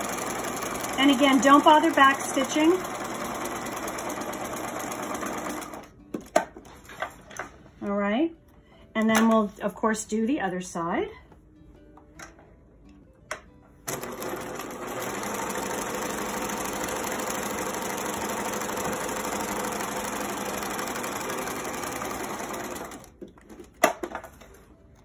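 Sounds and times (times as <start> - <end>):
sewing machine stitching: 0.0 - 5.9, 13.9 - 23.1.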